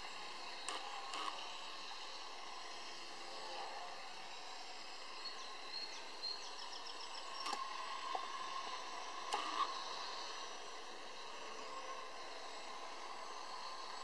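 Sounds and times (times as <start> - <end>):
model plane electric motor whine: 0.0 - 14.0
sharp clicks: 0.6 - 1.4, 7.4 - 7.7, 9.3 - 9.7.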